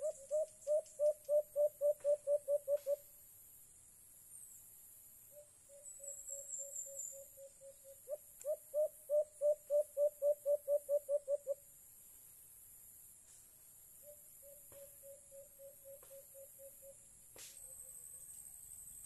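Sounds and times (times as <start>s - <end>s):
dove hooting: 0.0s - 3.0s, 5.7s - 11.6s.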